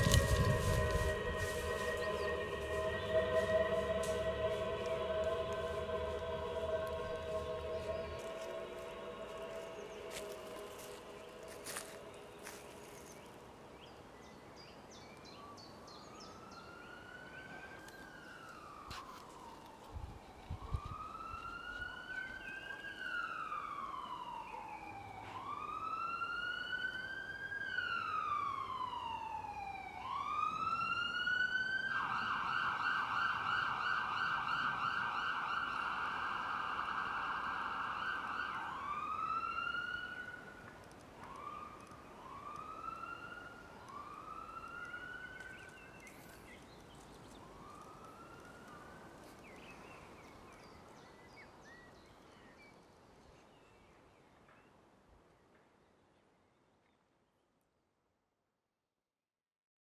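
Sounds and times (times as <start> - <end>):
emergency vehicle siren: 0.0 - 13.3, 15.8 - 50.6.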